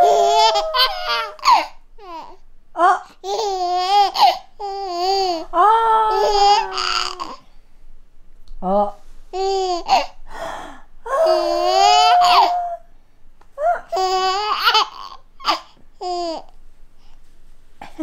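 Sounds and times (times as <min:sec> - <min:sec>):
baby laughing and squealing: 0:00.0 - 0:02.4, 0:03.2 - 0:07.4, 0:09.4 - 0:10.2, 0:11.3 - 0:12.8, 0:13.7 - 0:16.4.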